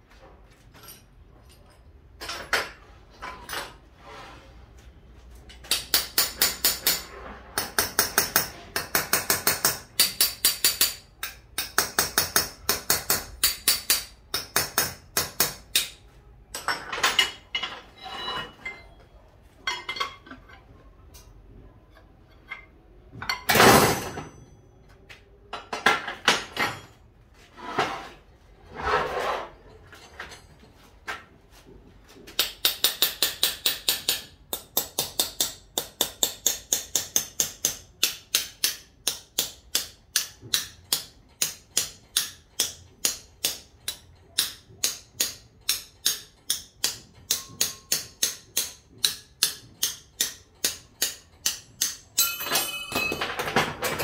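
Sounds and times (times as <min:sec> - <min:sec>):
hammer tapping on metal: 0:05.5 - 0:16.8, 0:32.3 - 0:54.0.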